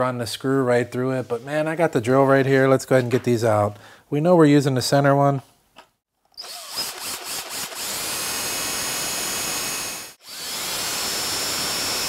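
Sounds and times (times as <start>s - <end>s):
cordless drill whining: 6.3s - 12.0s.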